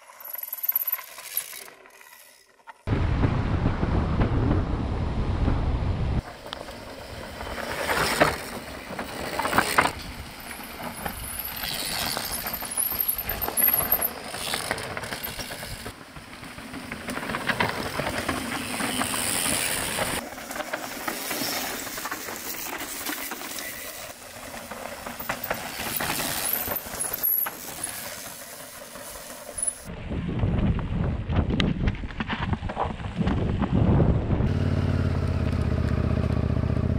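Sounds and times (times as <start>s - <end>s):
bike clicks and rattles: 0.0s - 2.9s, 6.2s - 29.9s
bike tyres crunching over gravel: 6.2s - 29.9s.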